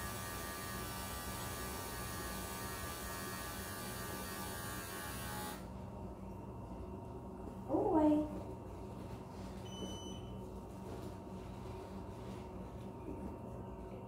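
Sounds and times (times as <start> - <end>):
electric clippers buzzing: 0.0 - 5.6.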